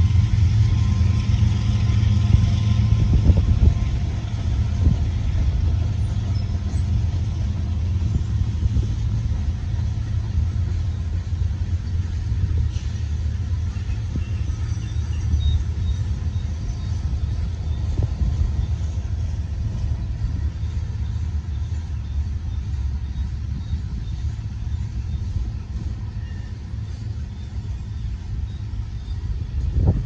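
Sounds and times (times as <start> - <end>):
train wheels rumbling on rail: 0.0 - 30.0.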